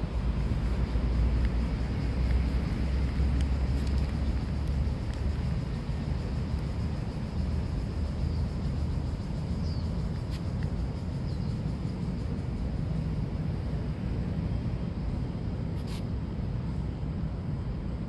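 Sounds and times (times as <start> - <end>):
steady low rumble: 0.0 - 18.0
brief hissing sounds: 15.8 - 16.1.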